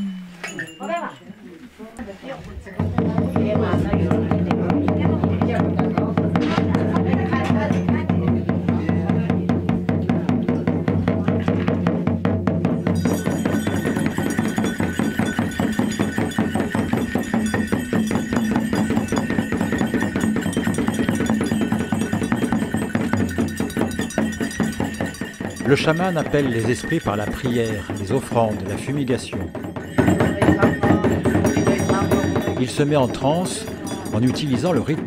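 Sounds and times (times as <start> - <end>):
high ringing tones: 0.0 - 1.6, 12.9 - 35.0
frame drum beaten fast: 2.8 - 35.0.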